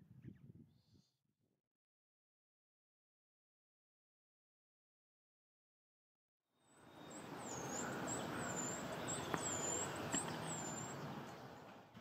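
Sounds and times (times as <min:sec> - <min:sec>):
outdoor background: 0:06.4 - 0:12.0.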